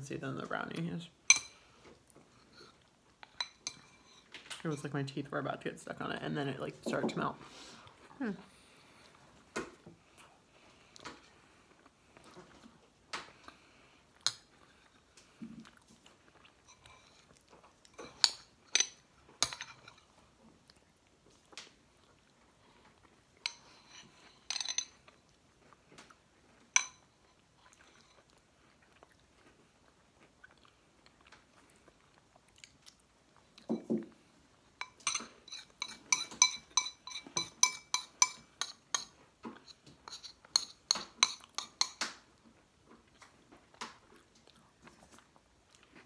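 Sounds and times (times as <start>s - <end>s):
soft chewing: 0.6s - 4.6s, 7.7s - 46.0s
metal spoons clinking against bowls: 1.3s - 1.6s, 3.3s - 4.9s, 18.0s - 20.0s, 23.4s - 25.0s, 26.8s - 27.0s, 34.8s - 39.1s, 40.1s - 42.0s.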